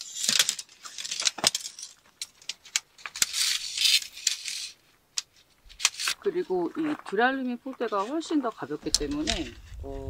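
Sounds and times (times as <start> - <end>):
metal tent poles clinking: 0.0 - 4.8.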